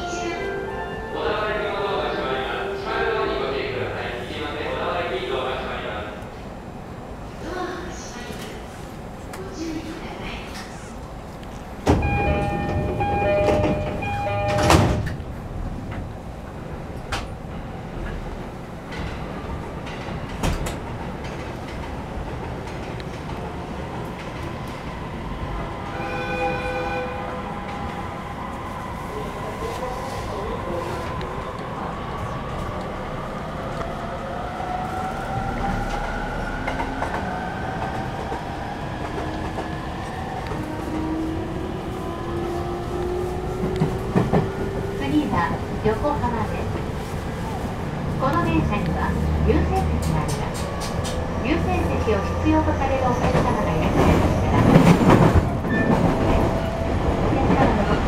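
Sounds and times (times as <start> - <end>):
train low rumble: 0.0 - 58.0
rail-joint clicks: 11.4 - 17.4, 18.9 - 23.4, 49.6 - 51.3
sliding doors shutting thud: 11.8 - 15.3
two-tone door chime: 12.0 - 15.2.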